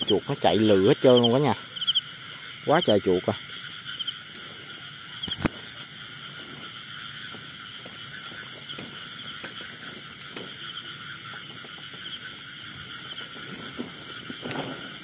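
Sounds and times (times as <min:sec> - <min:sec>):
insects and frogs calling: 0:00.0 - 0:15.0
footsteps through grass: 0:03.6 - 0:15.0.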